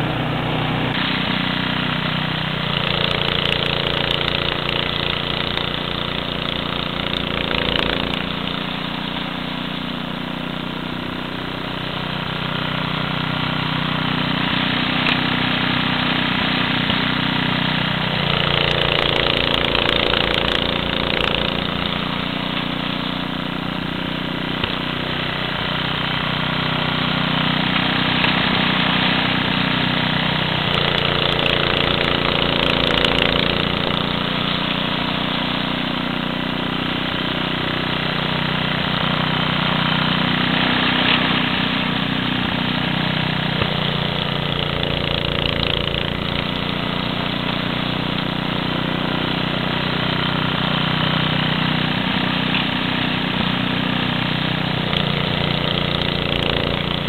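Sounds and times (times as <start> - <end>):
snow blower engine running: 0.0 - 57.0.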